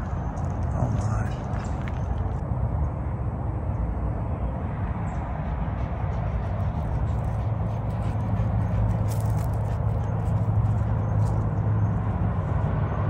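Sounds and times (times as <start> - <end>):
footsteps on gravel: 0.0 - 2.4, 8.5 - 11.4
steady low rumble: 0.0 - 13.0.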